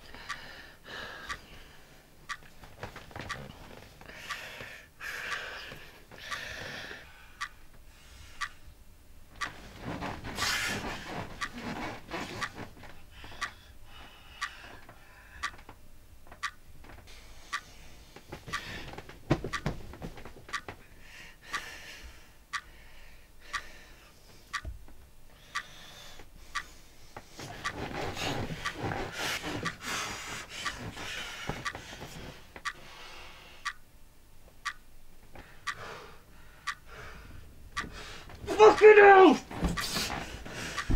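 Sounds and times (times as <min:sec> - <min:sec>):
man breathing heavily: 0:00.0 - 0:02.2, 0:02.9 - 0:08.8, 0:09.5 - 0:15.7, 0:17.1 - 0:19.1, 0:20.8 - 0:24.5, 0:25.3 - 0:33.7, 0:35.3 - 0:38.6, 0:39.5 - 0:40.9
clock ticking: 0:00.1 - 0:00.6, 0:01.2 - 0:06.8, 0:07.4 - 0:08.7, 0:09.4 - 0:13.8, 0:14.4 - 0:16.7, 0:17.4 - 0:20.8, 0:21.4 - 0:21.7, 0:22.5 - 0:22.8, 0:23.4 - 0:23.8, 0:24.5 - 0:24.9, 0:25.5 - 0:26.8, 0:27.4 - 0:32.9, 0:33.6 - 0:33.9, 0:34.6 - 0:34.9, 0:35.6 - 0:36.0, 0:36.6 - 0:37.0, 0:37.7 - 0:40.9
bedding rustling: 0:09.5 - 0:13.0, 0:18.1 - 0:20.5, 0:27.1 - 0:32.6, 0:39.3 - 0:40.9.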